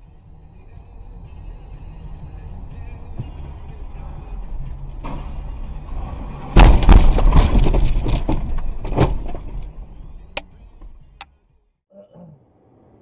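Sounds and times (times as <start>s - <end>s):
road noise: 0.0s - 11.6s
car crash: 4.9s - 11.0s
crunching impacts: 4.9s - 11.0s.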